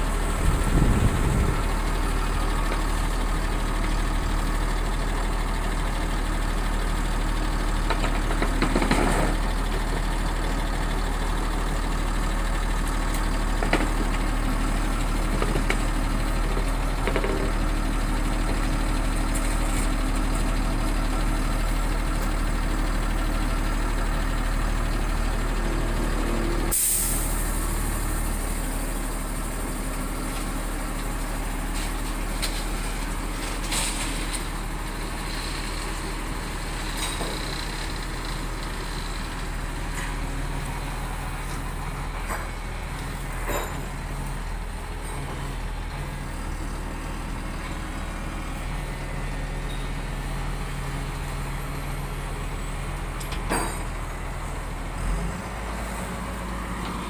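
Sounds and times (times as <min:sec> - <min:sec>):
excavator diesel engine running: 0:00.0 - 0:57.0
sharp hiss: 0:26.7 - 0:27.7.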